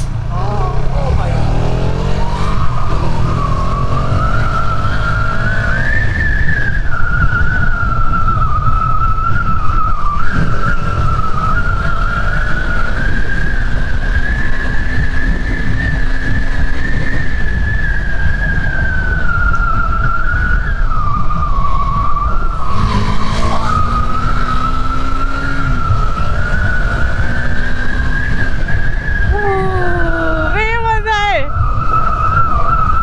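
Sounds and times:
motorcycle engine: 0.0s - 7.6s, 22.5s - 29.3s
wind buffeting microphone: 0.0s - 33.0s.

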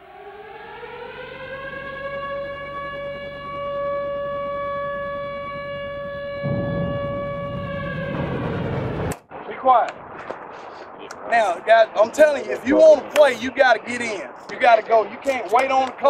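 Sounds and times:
siren: 0.0s - 16.0s
low rushing noise: 6.4s - 16.0s.

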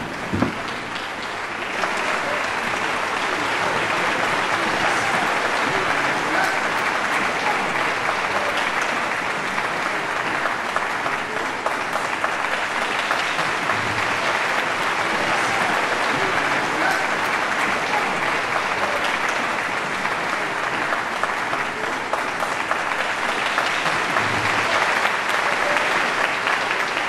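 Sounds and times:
large audience applauding: 0.0s - 27.0s.

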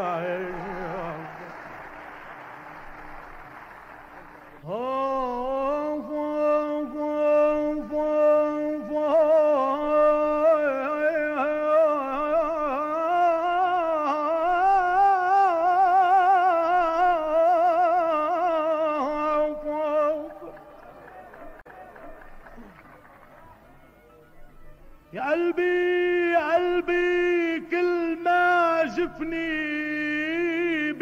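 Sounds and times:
person singing a long note: 4.6s - 20.6s.

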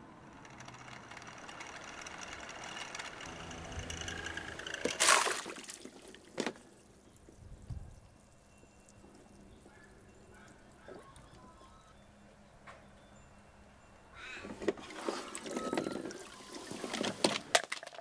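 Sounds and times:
water settling: 4.5s - 11.5s
loud splash into water: 5.0s - 5.8s.

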